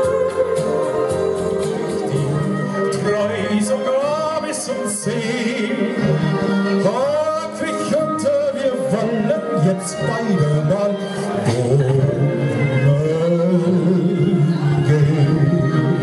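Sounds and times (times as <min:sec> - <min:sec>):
backing track over speakers: 0:00.0 - 0:16.0
man singing into microphone: 0:00.0 - 0:16.0.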